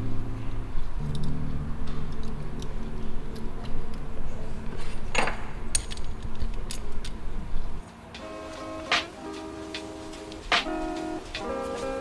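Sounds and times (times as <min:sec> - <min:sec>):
small metal parts clicking: 0:01.0 - 0:01.4, 0:05.1 - 0:07.2.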